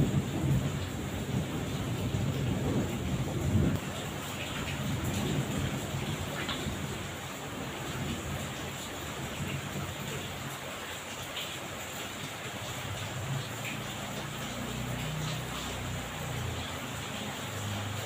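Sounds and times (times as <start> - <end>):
low rumble of thunder: 0.0 - 10.6
heavy rain pouring: 0.0 - 18.0.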